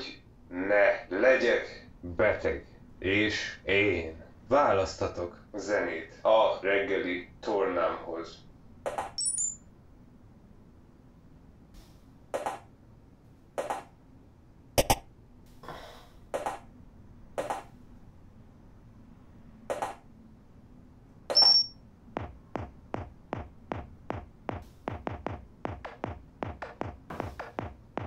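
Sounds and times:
high confirming beep: 0:09.2 - 0:09.6, 0:21.3 - 0:21.8
electronic menu blips: 0:21.3 - 0:21.7.

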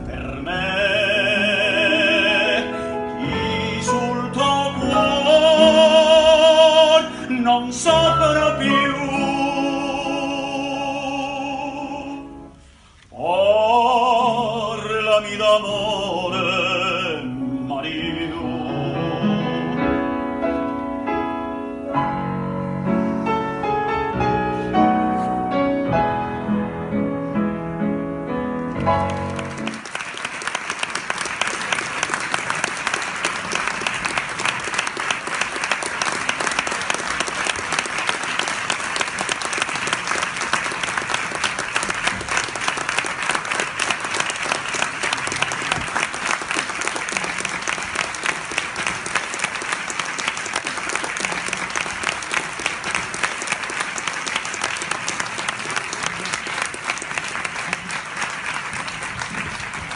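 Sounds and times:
man singing with vibrato: 0:00.0 - 0:20.4
grand piano playing: 0:00.0 - 0:59.9
audience applause: 0:28.7 - 0:59.9.

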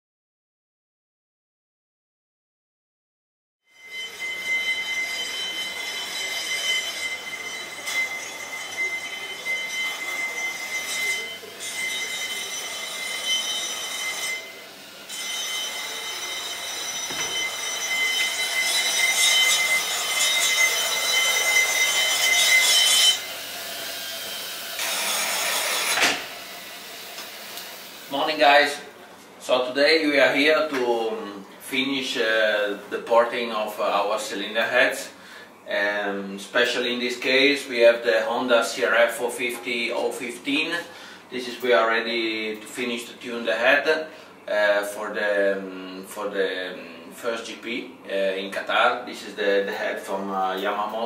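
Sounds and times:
rotary grinder whining: 0:03.8 - 0:28.1.

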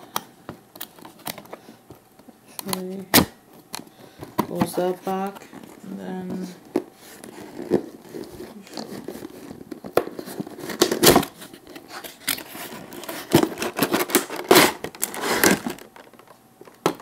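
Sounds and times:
plastic packaging crinkling: 0:04.3 - 0:17.0.

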